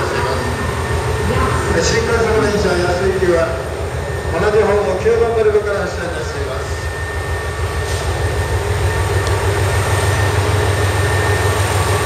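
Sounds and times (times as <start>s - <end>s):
diesel engines idling: 0.0s - 12.0s.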